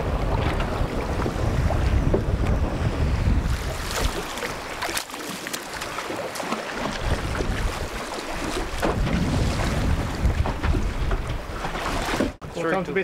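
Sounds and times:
wind buffeting microphone: 0.0s - 5.0s, 6.7s - 12.5s
water slapping boat: 0.0s - 13.0s
sharp splashes: 3.5s - 10.0s.

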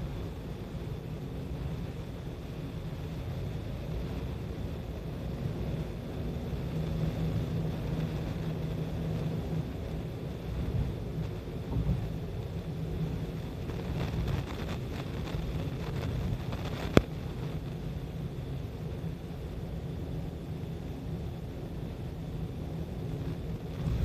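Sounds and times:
vehicle road and engine rumble: 0.0s - 24.0s.

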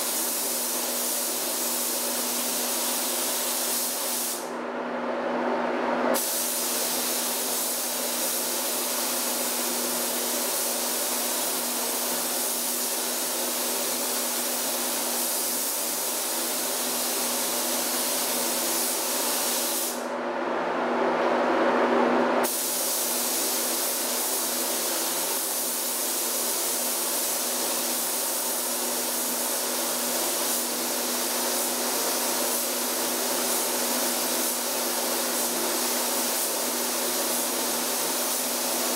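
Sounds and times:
paint spray gun hissing: 0.0s - 4.5s, 6.2s - 20.0s, 22.4s - 38.9s.

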